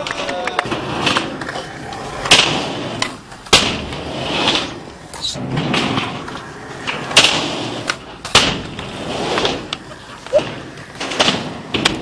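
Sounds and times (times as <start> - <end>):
skateboard clacks and slaps: 0.0 - 12.0
skateboard wheels rolling on concrete: 0.0 - 12.0.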